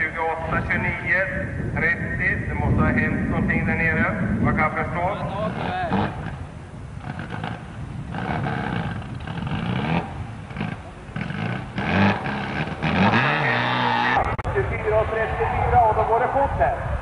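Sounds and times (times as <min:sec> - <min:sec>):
rally car engine revving: 0:04.6 - 0:14.4.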